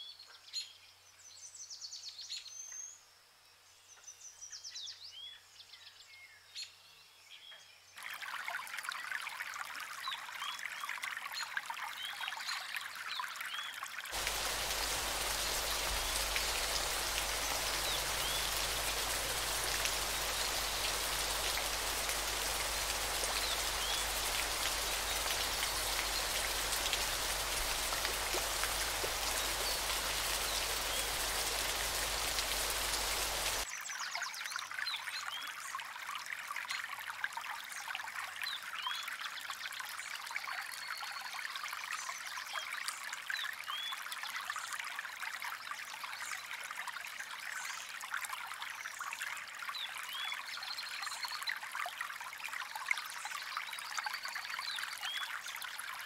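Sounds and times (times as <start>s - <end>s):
water trickling: 8.0s - 33.6s
hiss of falling water: 14.1s - 33.6s.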